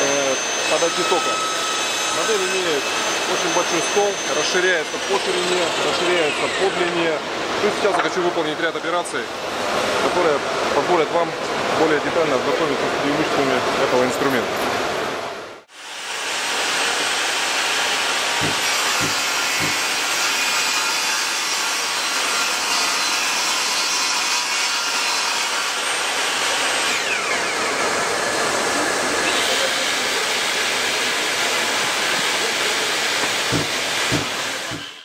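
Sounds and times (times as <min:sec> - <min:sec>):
table saw ripping wood: 0:16.0 - 0:28.4, 0:31.9 - 0:35.0
board knocking: 0:18.4 - 0:19.8, 0:33.2 - 0:34.9.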